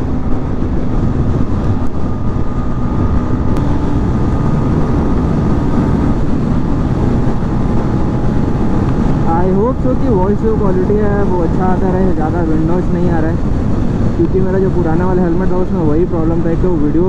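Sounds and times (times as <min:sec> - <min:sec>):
motorcycle engine running: 0:00.0 - 0:12.2
wind and road noise: 0:00.0 - 0:17.0.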